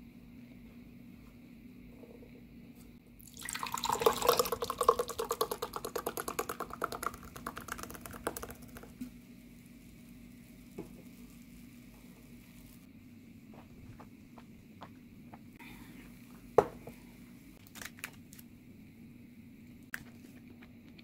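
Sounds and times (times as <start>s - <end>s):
drink fizzing: 3.2s - 12.9s
drink glugging into glass: 3.3s - 8.8s.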